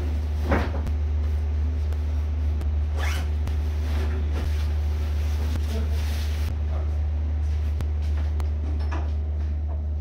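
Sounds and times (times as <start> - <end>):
steady low hum: 0.0 - 10.0
backpack zipper closing: 3.0 - 3.3.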